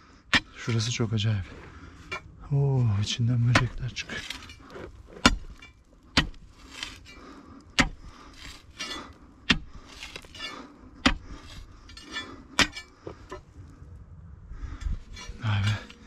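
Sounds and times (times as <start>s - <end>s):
soil scraping and crumbling: 0.0s - 13.7s, 14.7s - 16.0s
digging bar striking rock: 0.2s - 2.4s, 3.4s - 13.4s.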